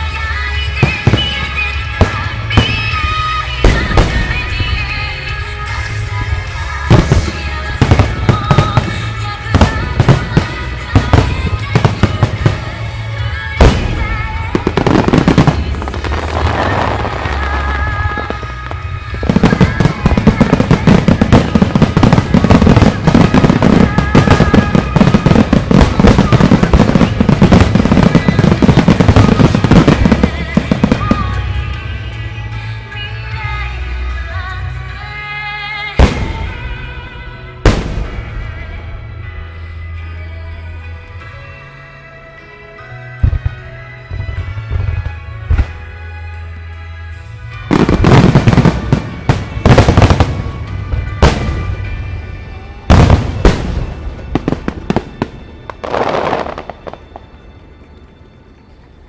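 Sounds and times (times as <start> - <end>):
fireworks bursting: 0.0 - 32.9, 35.9 - 38.9, 47.5 - 58.2
fireworks crackling: 0.0 - 33.2, 36.0 - 39.6, 47.5 - 59.0
music playing: 0.0 - 59.0.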